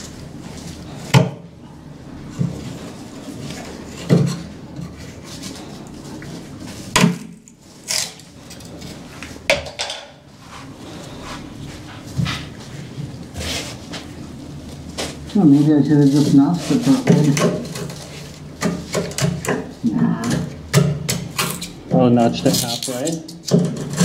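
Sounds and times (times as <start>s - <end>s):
small cracks and scrapes: 22.4s - 24.0s.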